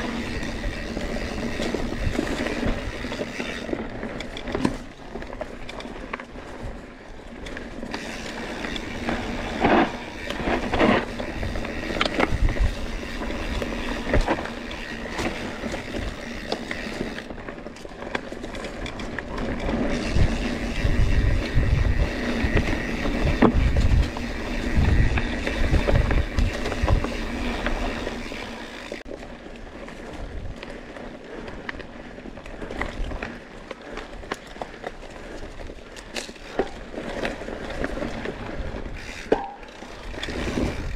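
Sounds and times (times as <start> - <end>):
bike knocking and rattling: 0.0 - 40.9
tyres rolling on dirt: 0.0 - 40.9
wind buffeting microphone: 8.0 - 17.3, 19.6 - 28.3, 38.4 - 40.9.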